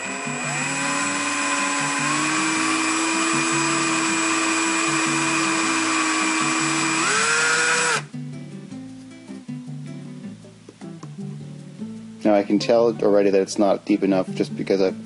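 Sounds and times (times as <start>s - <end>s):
cordless drill whine: 0.0s - 8.1s.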